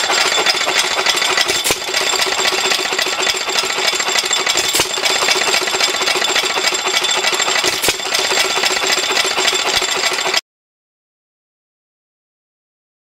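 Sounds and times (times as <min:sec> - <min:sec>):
hit-and-miss engine clattering: 0:00.0 - 0:10.4.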